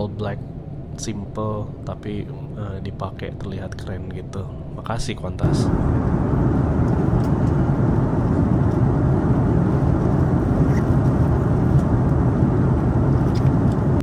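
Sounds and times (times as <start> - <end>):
airplane cabin rumble: 0.0 - 14.0.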